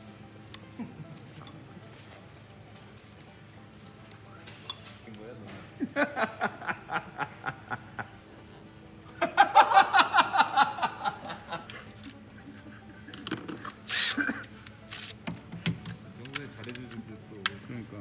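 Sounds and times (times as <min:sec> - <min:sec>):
background music: 0:00.0 - 0:18.0
people laughing: 0:00.7 - 0:01.9, 0:05.7 - 0:13.4, 0:14.0 - 0:14.6.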